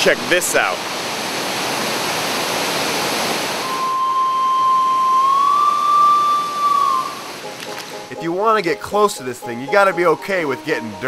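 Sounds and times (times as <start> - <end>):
waterfall rushing: 0.0 - 8.4
steady high tone: 3.6 - 7.6.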